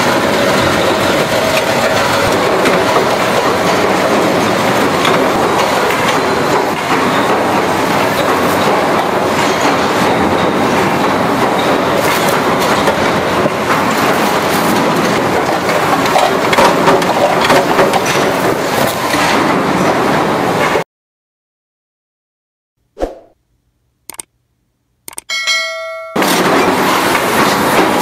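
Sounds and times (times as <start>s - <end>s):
factory machinery clattering: 0.0s - 20.8s, 25.5s - 28.0s.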